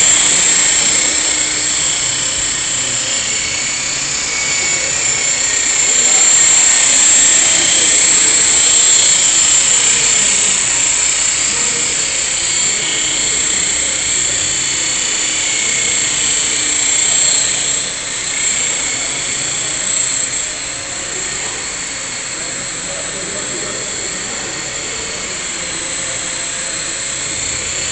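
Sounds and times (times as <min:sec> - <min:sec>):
rc helicopter whine: 0:00.0 - 0:27.9.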